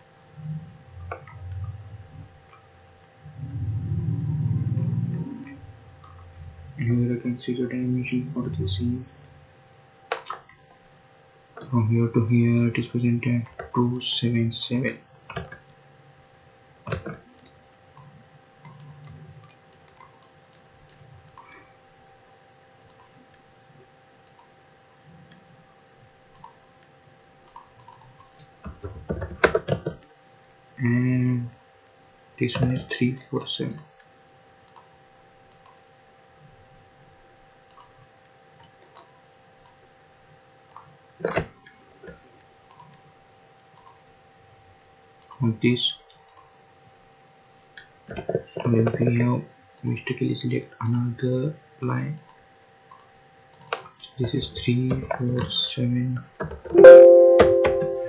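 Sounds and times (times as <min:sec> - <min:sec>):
faint electrical hum: 0:00.0 - 0:58.0
computer mouse clicks: 0:18.6 - 0:21.6, 0:22.9 - 0:23.2, 0:24.2 - 0:24.6, 0:26.3 - 0:26.6, 0:27.4 - 0:30.0, 0:34.7 - 0:34.9, 0:35.5 - 0:35.8, 0:37.7 - 0:38.0, 0:38.6 - 0:39.8, 0:40.7 - 0:41.5, 0:42.7 - 0:43.0, 0:43.8 - 0:44.0, 0:45.2 - 0:45.4, 0:46.2 - 0:46.6, 0:52.2 - 0:54.1
computer mouse buttons clicking: 0:22.9 - 0:23.2, 0:24.2 - 0:24.5, 0:26.3 - 0:26.6, 0:27.5 - 0:28.5, 0:34.7 - 0:34.9, 0:38.6 - 0:39.8, 0:42.7 - 0:43.0, 0:43.8 - 0:44.0, 0:52.2 - 0:53.9.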